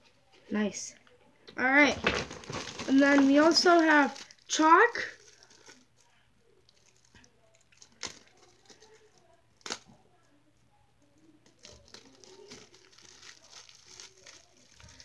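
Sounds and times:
packaging rustling: 1.9 - 6.1, 11.5 - 15.0.

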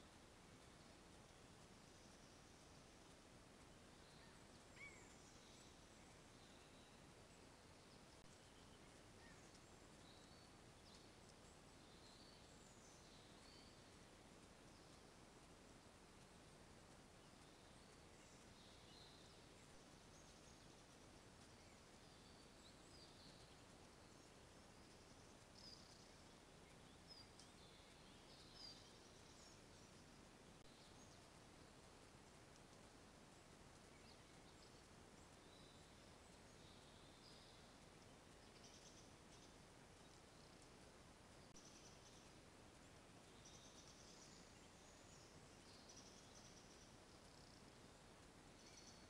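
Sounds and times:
faint steady hiss: 0.0 - 49.0
faint high bird chirps: 4.0 - 7.2, 48.6 - 49.0.

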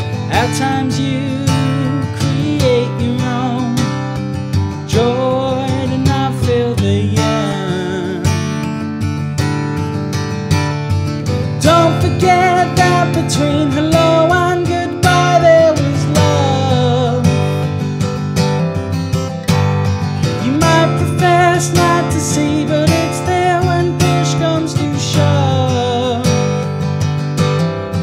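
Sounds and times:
man singing: 0.0 - 8.7, 11.4 - 17.8, 20.2 - 26.7
acoustic guitar strumming: 0.0 - 28.0.

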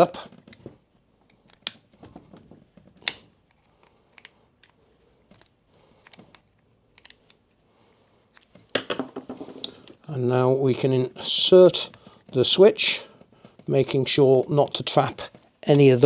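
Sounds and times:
screwdriver clicking and scraping: 3.0 - 7.6.

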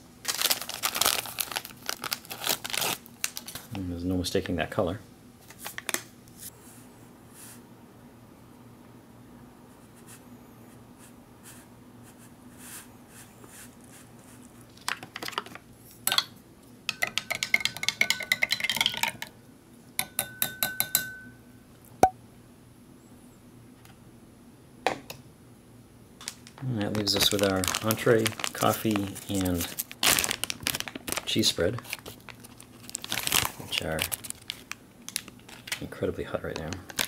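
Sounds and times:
spoon clinking in glass: 20.0 - 21.4.

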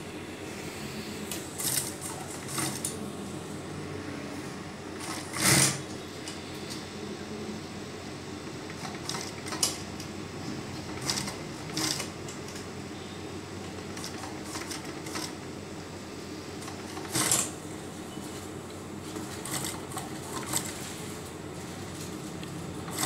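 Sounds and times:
sewing machine humming: 1.2 - 3.3, 4.0 - 6.4, 8.4 - 12.7, 13.5 - 15.6, 16.5 - 17.8, 19.0 - 23.0
sewing machine clicks: 5.0 - 5.8.

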